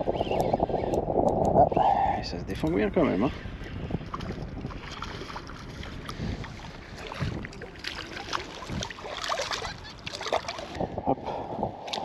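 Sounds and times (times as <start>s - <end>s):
wind on microphone: 0.0s - 12.0s
water lapping around kayak: 2.6s - 12.0s
fish splashing: 7.0s - 10.8s.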